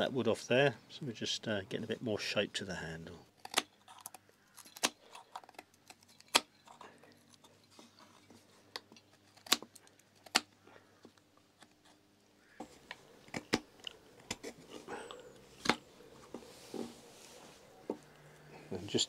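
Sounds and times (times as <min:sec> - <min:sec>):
knife cutting wood: 0:09.2 - 0:10.6.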